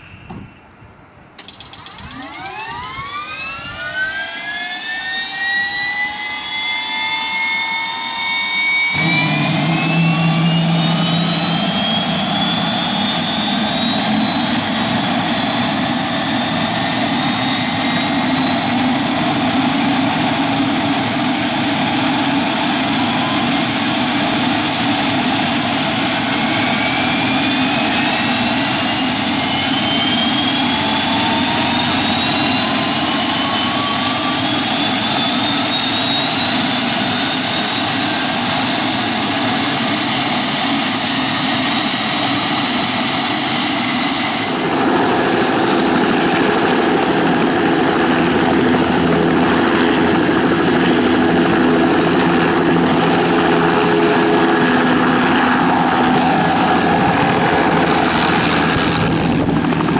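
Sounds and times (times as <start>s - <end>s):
turbine whine rising: 1.4s - 59.9s.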